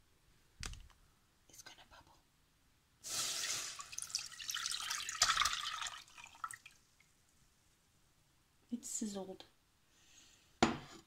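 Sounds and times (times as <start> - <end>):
milk pouring into saucepan: 3.0 - 7.0.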